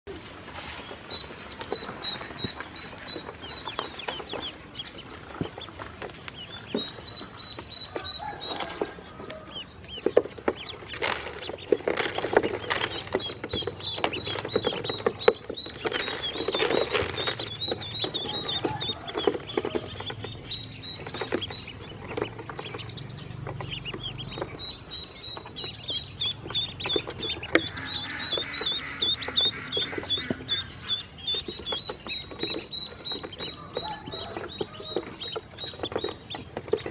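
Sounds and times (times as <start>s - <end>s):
ducklings peeping: 0.1s - 36.9s
bills tapping on plastic: 10.2s - 19.9s.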